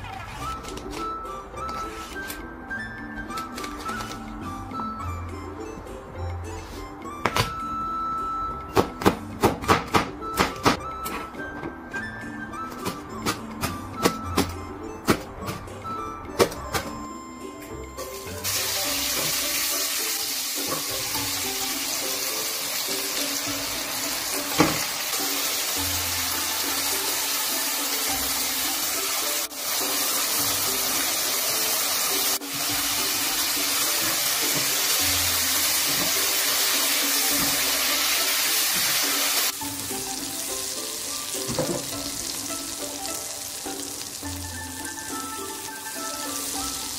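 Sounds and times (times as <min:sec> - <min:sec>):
background music: 0:00.0 - 0:46.9
food sizzling in oil in a wok: 0:18.4 - 0:46.9.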